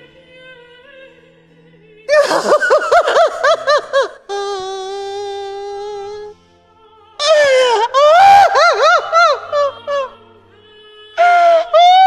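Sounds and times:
woman sobbing hysterically: 2.1 - 6.3, 7.2 - 10.2, 11.2 - 12.0.

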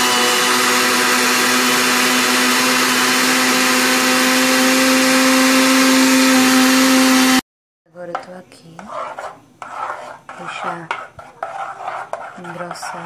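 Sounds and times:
electric blender running: 0.0 - 7.4.

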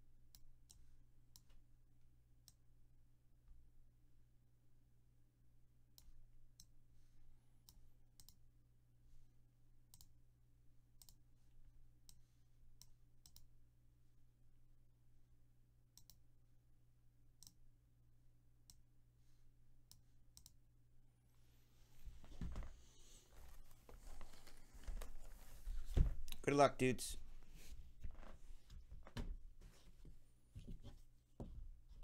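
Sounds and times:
faint irregular clicks: 7.6 - 8.4, 9.9 - 10.2, 11.0 - 11.2, 12.0 - 13.5, 15.9 - 16.2, 17.4 - 17.6, 19.9 - 20.6.

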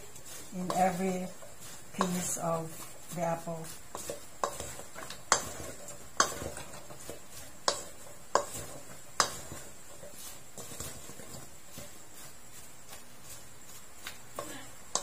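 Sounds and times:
apples stirred in bowl: 0.0 - 15.0
spatula knocking metal bowl: 4.0 - 6.8, 7.6 - 9.7.

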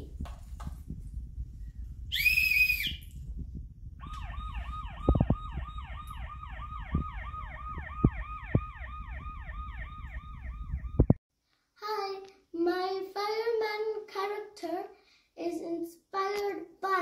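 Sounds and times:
electronic toy siren wailing: 4.0 - 11.2.

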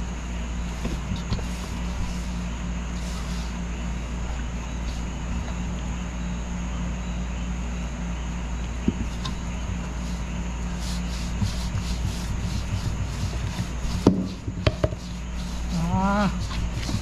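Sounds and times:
steady low hum: 0.0 - 17.0
hands rubbing dough in a bowl: 0.8 - 3.6, 9.0 - 17.0
sharp knocks: 14.0 - 15.0.

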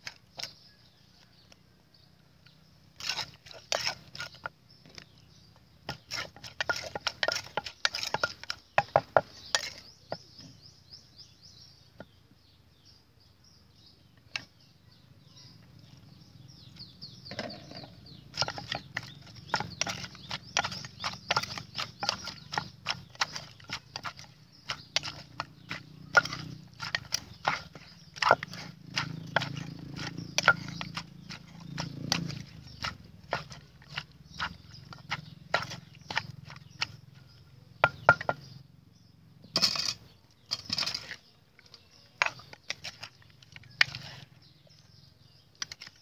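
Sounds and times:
metal spoon scraping in mortar: 2.6 - 10.5, 16.6 - 38.6, 39.4 - 45.0
wooden pestle pounding in mortar: 5.8 - 10.6, 17.7 - 38.6.

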